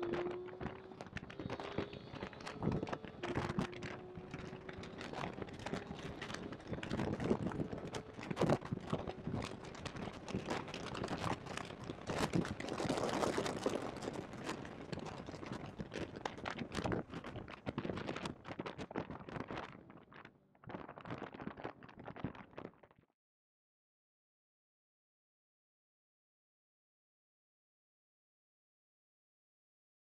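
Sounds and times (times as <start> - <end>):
microphone crackling and rubbing: 0.0 - 22.9.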